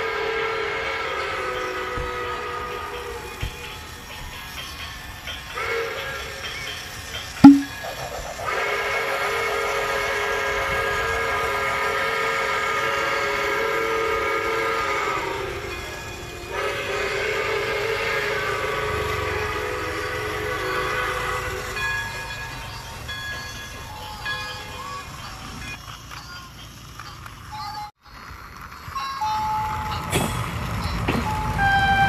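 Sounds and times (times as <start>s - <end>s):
train horn blasts: 0.0s - 3.3s, 8.8s - 21.8s, 31.2s - 32.0s.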